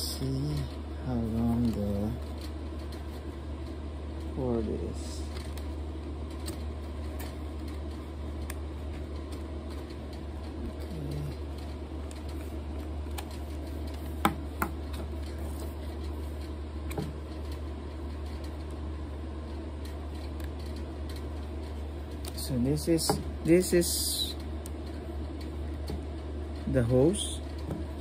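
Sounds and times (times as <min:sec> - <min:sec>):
steady low hum: 0:00.0 - 0:28.0.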